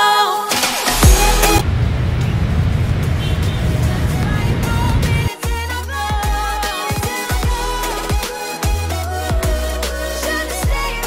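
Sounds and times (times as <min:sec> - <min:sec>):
motorbike and car engines rumbling: 0:01.5 - 0:05.3.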